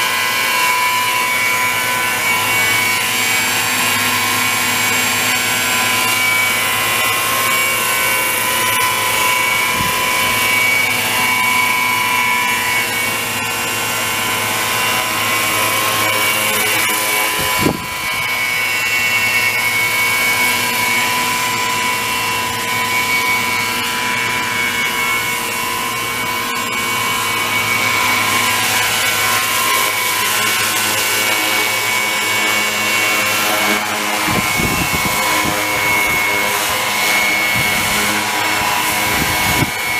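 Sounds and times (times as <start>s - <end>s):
model helicopter whining: 0.0s - 39.9s.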